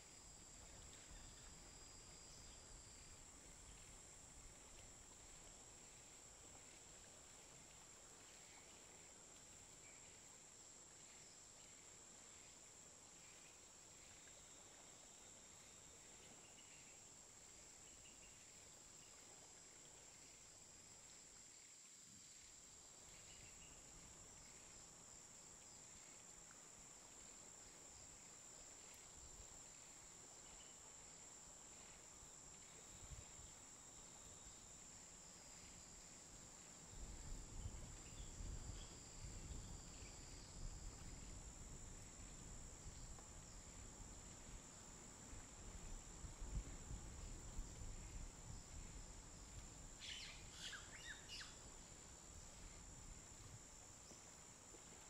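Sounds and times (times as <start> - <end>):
insect chirps: 0.0 - 55.0
insect high-pitched trill: 49.9 - 52.0.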